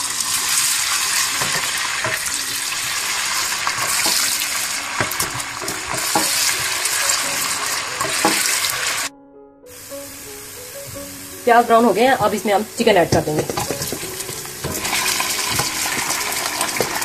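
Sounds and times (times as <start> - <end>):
onions sizzling in hot oil: 0.0 - 9.1, 9.7 - 17.0
stirring clicks: 13.1 - 17.0.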